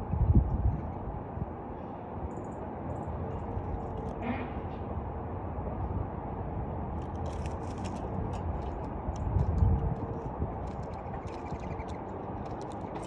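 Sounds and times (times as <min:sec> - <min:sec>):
steady low rumble: 0:00.0 - 0:01.7, 0:04.9 - 0:13.0
small birds chirping: 0:10.6 - 0:13.0.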